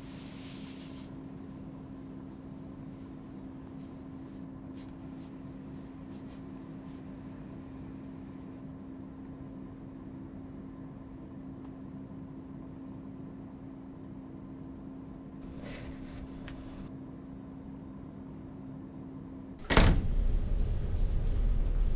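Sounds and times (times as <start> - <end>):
low room hum: 0.0 - 21.9
pen scratching on skin: 3.0 - 7.1.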